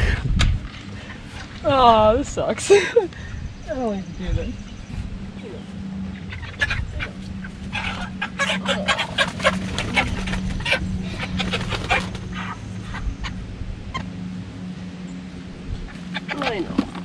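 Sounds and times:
chickens clucking: 3.1s - 14.2s, 15.8s - 17.0s.

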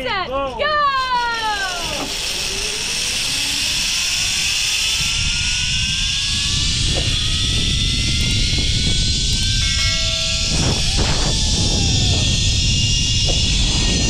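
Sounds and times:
zipline pulleys whining on cable: 0.0s - 14.0s
wind on microphone: 2.9s - 14.0s.

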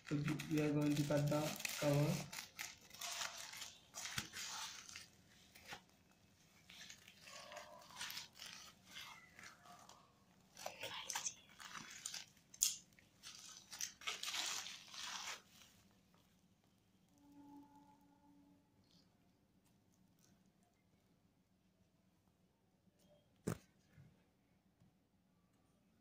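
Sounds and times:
scissors cutting plastic mailer: 0.0s - 5.8s, 6.7s - 9.9s, 10.5s - 15.4s
plastic crinkling: 0.0s - 16.3s.

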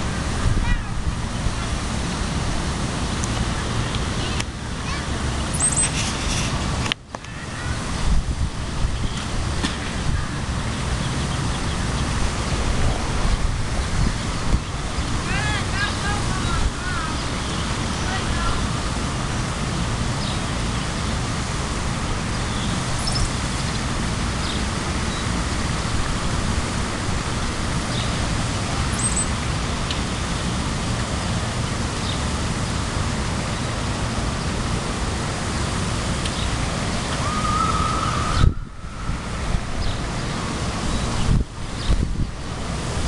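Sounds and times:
wind buffeting microphone: 0.0s - 4.2s, 7.8s - 28.7s, 36.7s - 43.0s.

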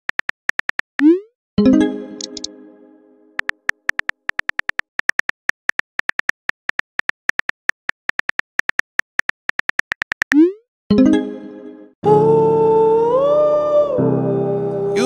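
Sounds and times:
music: 1.6s - 3.6s, 10.9s - 15.0s
phone keyboard tap clicks: 3.4s - 10.4s.

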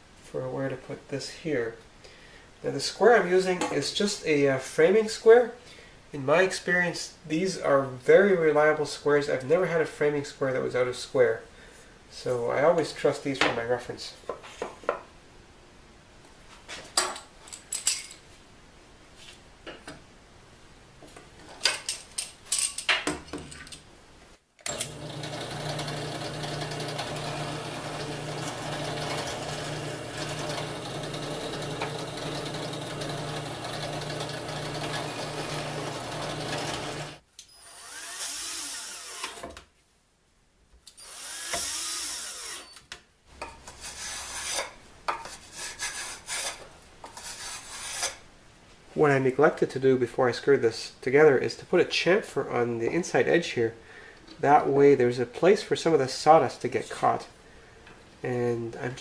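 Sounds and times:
power tool bursts: 24.7s - 39.4s, 41.0s - 42.8s
drill press drilling wood: 24.7s - 39.5s, 41.0s - 42.7s.

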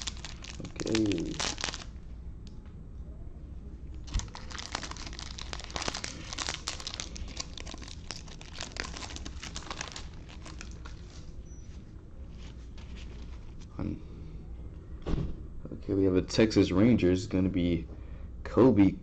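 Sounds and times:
foil wrapper crinkling: 0.0s - 1.9s, 4.0s - 11.4s.

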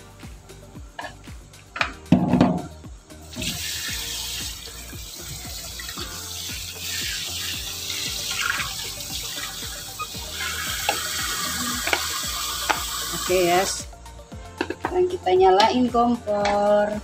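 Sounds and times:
tap water splashing over vegetables: 10.8s - 13.0s.

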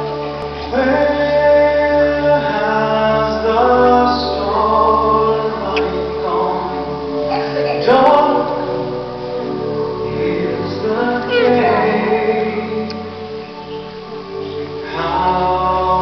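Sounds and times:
several voices singing over music: 0.0s - 16.0s.

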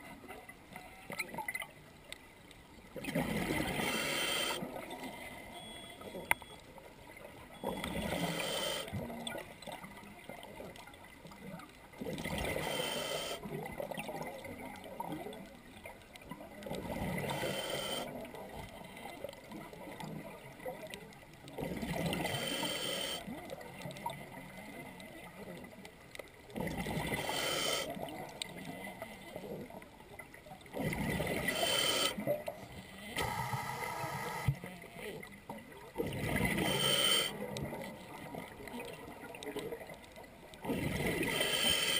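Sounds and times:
faint regulator hiss: 3.7s - 4.7s, 8.0s - 9.8s, 12.5s - 13.8s, 17.2s - 20.0s, 22.2s - 23.3s, 27.1s - 29.6s, 31.4s - 35.2s, 36.5s - 38.8s, 41.2s - 41.9s.

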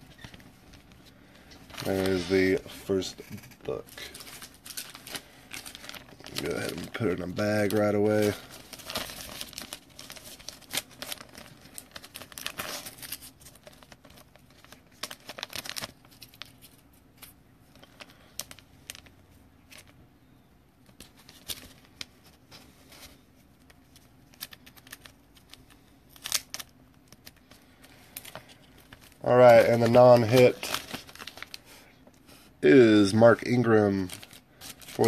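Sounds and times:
plastic bag crinkling: 0.0s - 20.0s, 21.0s - 31.9s, 32.6s - 35.0s.

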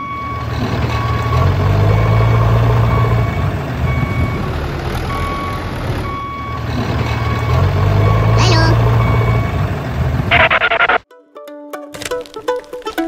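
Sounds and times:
reversing beeper: 0.0s - 9.7s, 10.3s - 11.0s
truck engine running: 0.0s - 11.0s.

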